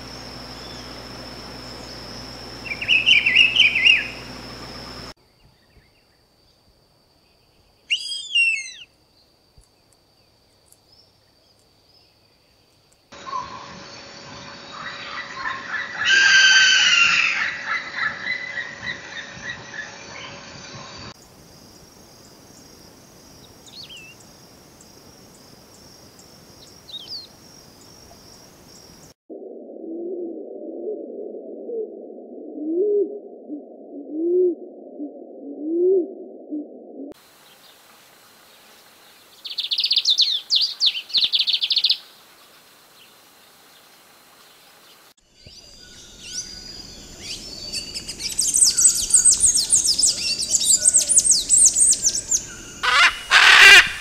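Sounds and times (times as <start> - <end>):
insect drone: 0.0 - 30.1, 37.2 - 54.0
squeaky songbird twittering: 2.6 - 4.3, 7.9 - 8.9, 45.4 - 54.0
faint finch chirps: 2.6 - 6.0, 7.9 - 8.9.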